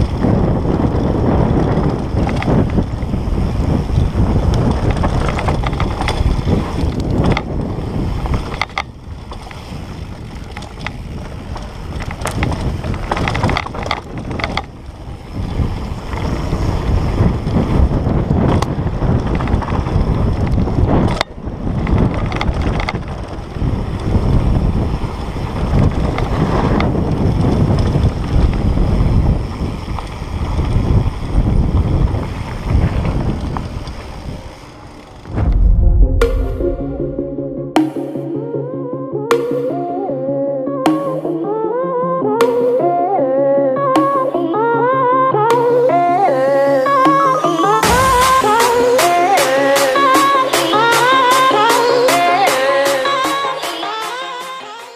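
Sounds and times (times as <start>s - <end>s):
tyres rolling over dirt trail: 0.0s - 35.4s
bike knocking and rattling: 0.0s - 35.5s
wind buffeting microphone: 0.0s - 37.8s.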